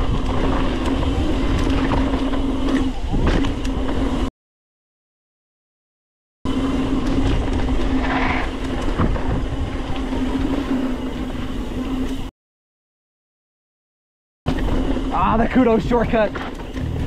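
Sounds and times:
bike rattling: 0.0s - 4.3s, 6.5s - 12.3s, 14.5s - 17.0s
bike tyres rumbling on rough trail: 0.0s - 4.3s, 6.5s - 12.3s, 14.5s - 17.0s.

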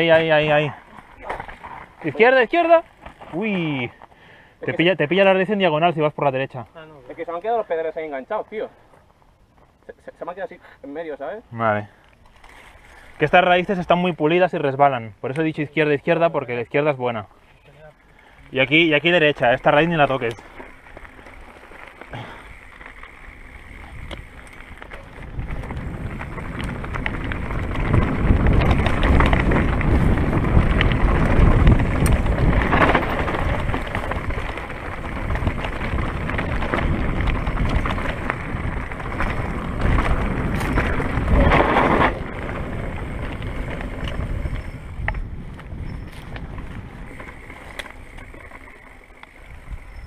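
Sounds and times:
mountain bike rattling on trail: 0.0s - 50.0s
wind buffeting microphone: 18.9s - 50.0s.

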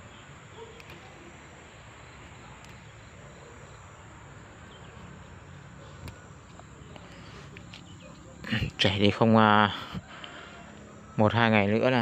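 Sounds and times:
insects chirring: 0.0s - 12.0s
faint clicks: 2.6s - 2.9s.

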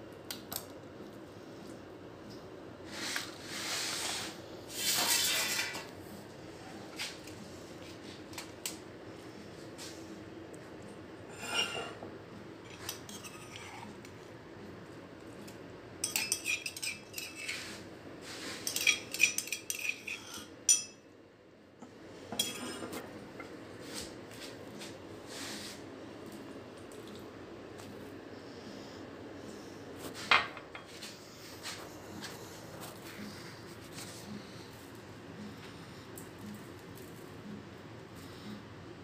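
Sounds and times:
metal spoon clinking on dishes: 16.0s - 17.5s, 18.6s - 21.0s, 22.4s - 22.9s.

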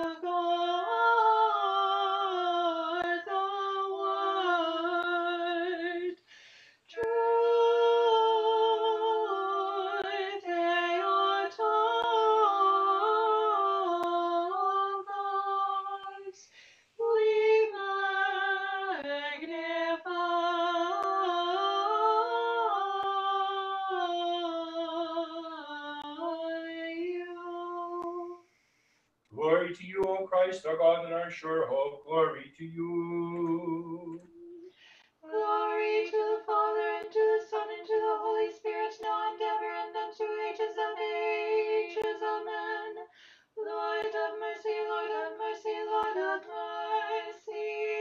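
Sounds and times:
women singing in harmony: 0.0s - 28.6s, 32.8s - 48.0s.

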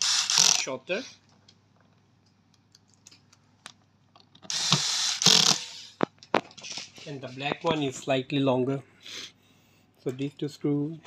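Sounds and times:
electric screwdriver driving screw: 0.0s - 0.7s, 4.5s - 5.9s.

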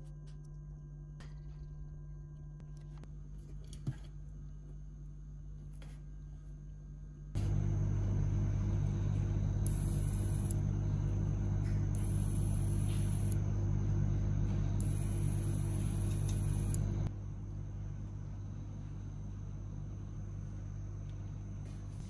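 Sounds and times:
loud machine hum: 7.4s - 22.0s.

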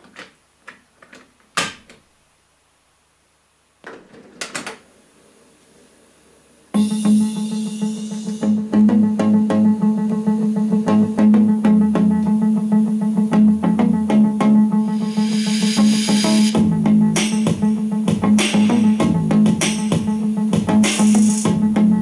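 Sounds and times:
faint tape hiss: 0.0s - 16.5s
music with steady drum beat: 6.8s - 9.9s, 15.0s - 22.0s.

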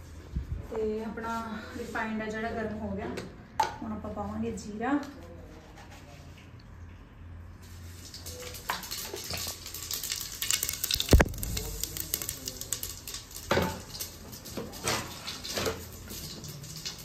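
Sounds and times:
seeds sizzling in hot oil: 7.6s - 17.0s.

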